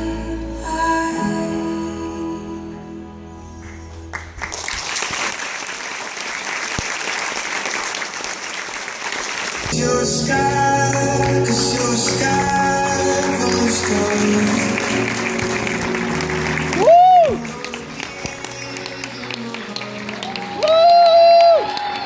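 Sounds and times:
soft stage music: 0:00.0 - 0:05.2, 0:09.6 - 0:22.0
audience applauding: 0:03.6 - 0:09.8, 0:10.6 - 0:22.0
upbeat music track: 0:09.7 - 0:21.0.

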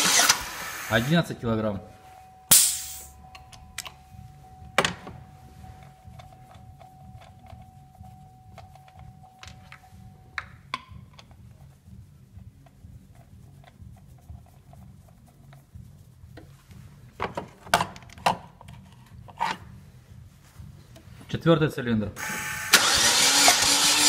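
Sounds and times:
pressure valve hissing: 0:00.0 - 0:01.1, 0:02.5 - 0:03.2
low steady hum: 0:00.8 - 0:21.3.

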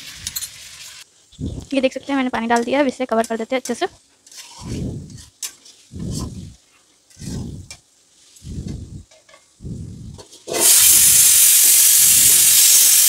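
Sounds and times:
water sizzling in hot pan: 0:00.0 - 0:01.1, 0:10.5 - 0:13.0
spatula stirring in a pan: 0:02.6 - 0:09.6.

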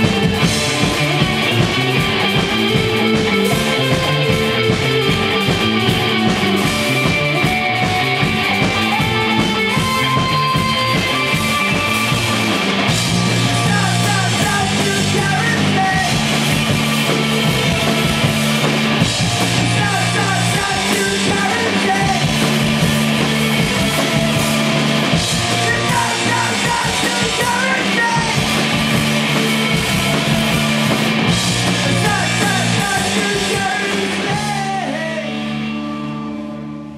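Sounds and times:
live rock band playing: 0:00.0 - 0:36.9
man singing: 0:13.2 - 0:16.4, 0:19.4 - 0:22.5, 0:25.4 - 0:28.6, 0:31.7 - 0:35.8.

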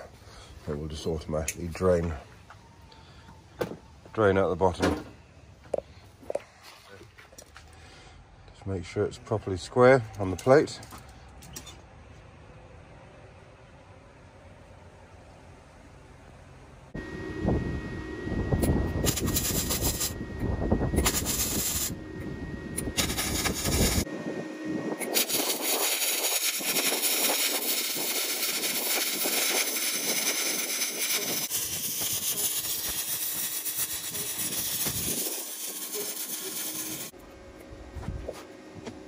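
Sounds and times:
welder arc crackling and sizzling: 0:18.6 - 0:20.2, 0:21.0 - 0:22.0, 0:22.8 - 0:24.1, 0:24.9 - 0:37.2.

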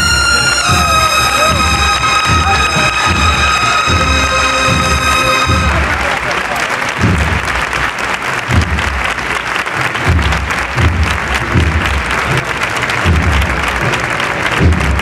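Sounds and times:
low thumps: 0:00.0 - 0:06.2
crowd applauding: 0:00.0 - 0:15.0.

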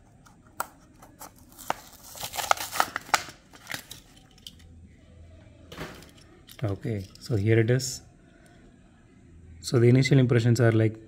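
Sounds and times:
plastic blister pack tearing: 0:01.3 - 0:04.0.

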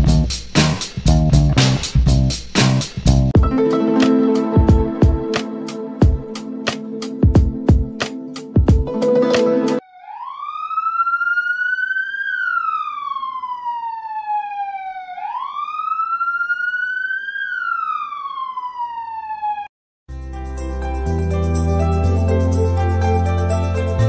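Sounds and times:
siren wailing: 0:09.8 - 0:19.7.

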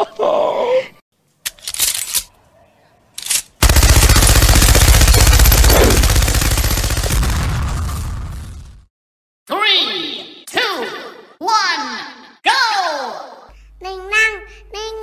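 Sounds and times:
sharp noises: 0:03.2 - 0:07.6
automatic gunfire: 0:03.6 - 0:07.4.

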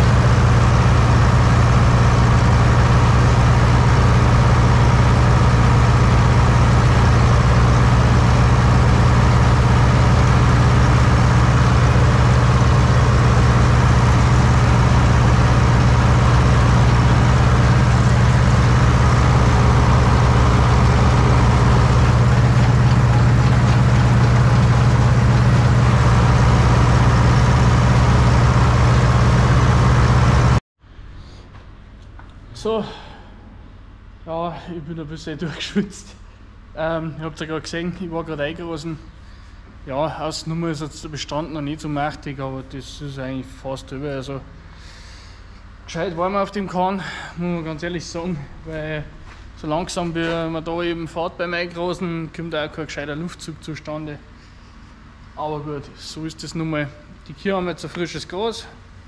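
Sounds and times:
tractor diesel engine droning: 0:00.0 - 0:31.4, 0:32.5 - 0:59.0.

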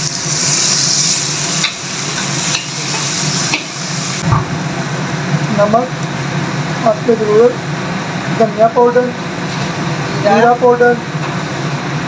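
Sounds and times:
chickpeas sizzling in hot oil: 0:00.0 - 0:04.2.

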